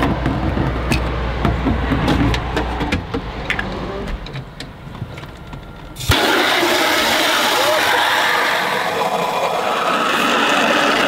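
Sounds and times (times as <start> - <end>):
sharp knocks: 0.0 - 3.3
car engine humming: 0.0 - 10.4.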